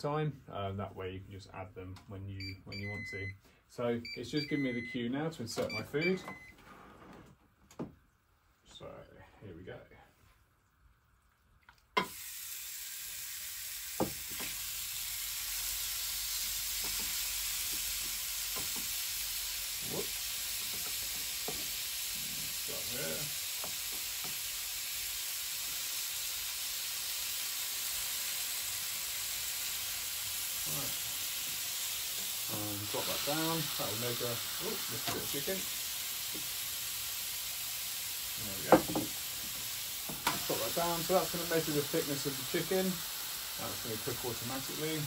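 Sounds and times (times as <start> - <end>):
chicken sizzling on a grill: 12.0 - 45.0.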